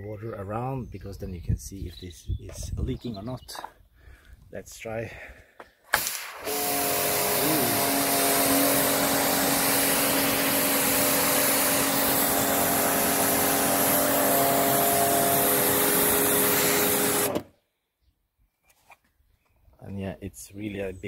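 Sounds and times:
water jet spraying on concrete: 6.0 - 17.4
pressure washer motor hum: 6.2 - 17.5.

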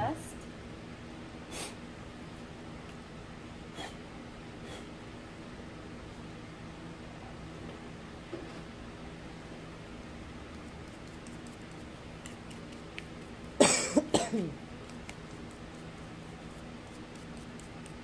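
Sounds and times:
faint steady hum: 0.0 - 18.0
person coughing: 13.6 - 14.6.

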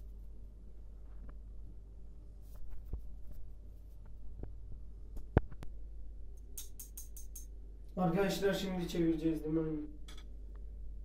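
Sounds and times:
low steady hum: 0.0 - 11.0
sausage slices clicking in a pan: 6.5 - 7.5.

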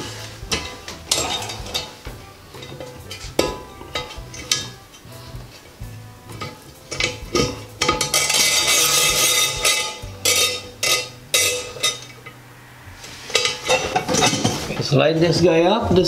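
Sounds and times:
scraping rustle: 0.0 - 2.0, 6.4 - 16.0.

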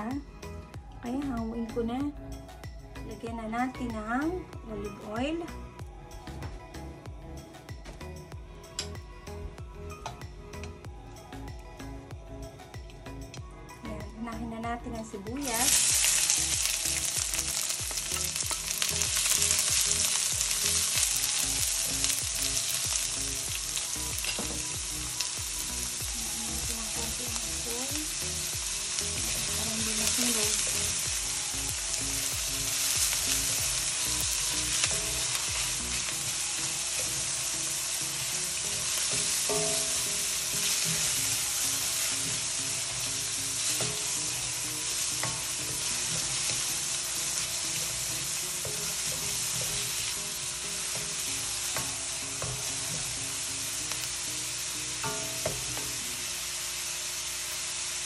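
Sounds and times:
onion sizzling in oil: 15.3 - 58.0.

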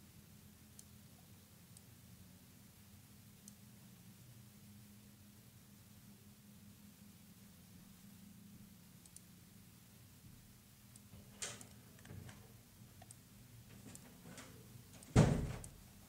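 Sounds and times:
faint low hum: 0.0 - 16.0
small clicks: 9.0 - 9.3, 10.9 - 12.4, 13.0 - 15.8.

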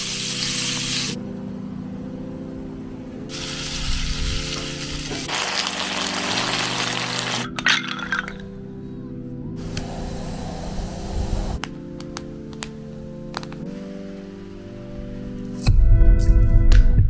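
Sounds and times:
background music chords: 0.0 - 17.0
food sizzling in a frying pan: 3.3 - 7.4.

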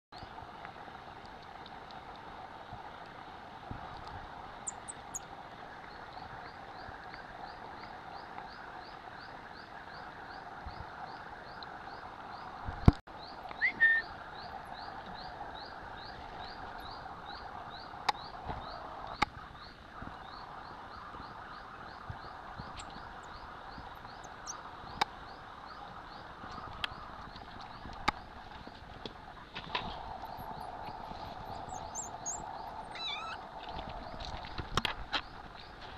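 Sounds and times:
short rising chirp: 31.7 - 33.4
faint high squeaks: 32.0 - 33.4.

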